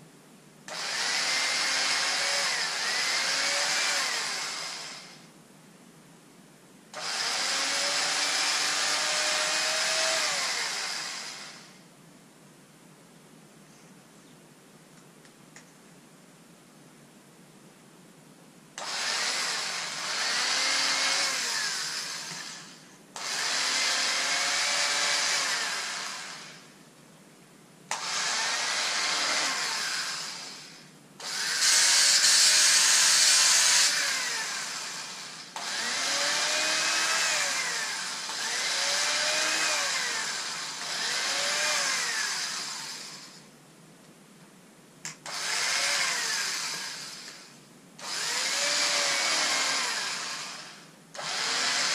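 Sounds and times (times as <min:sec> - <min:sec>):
electric fabric cutter whining: 0:00.7 - 0:05.3, 0:07.0 - 0:11.8, 0:18.8 - 0:26.7, 0:27.9 - 0:43.5, 0:45.1 - 0:51.9.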